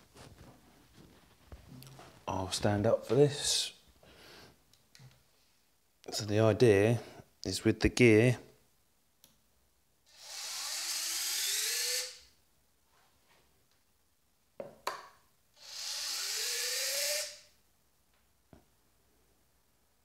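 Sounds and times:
servo whine rising in pitch: 0:10.2 - 0:12.3, 0:15.6 - 0:17.4.

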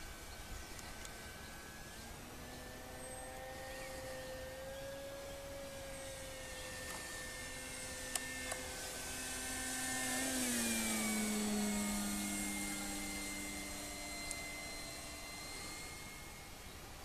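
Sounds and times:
model plane motor whining: 0:00.0 - 0:17.0.

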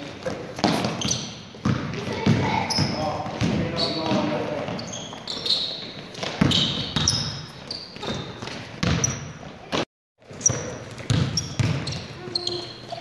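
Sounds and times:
sneaker squeaks: 0:00.0 - 0:13.0
basketball bouncing on hardwood: 0:00.6 - 0:04.3, 0:06.2 - 0:07.3, 0:08.0 - 0:09.2, 0:10.4 - 0:12.1.

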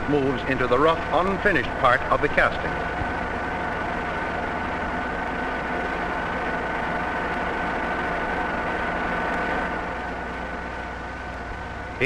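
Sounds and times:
boring mill humming and whining: 0:00.0 - 0:12.0.

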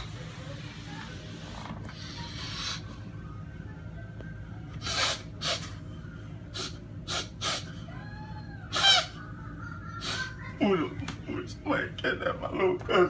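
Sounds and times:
young man sobbing: 0:08.7 - 0:11.0, 0:12.1 - 0:13.0.

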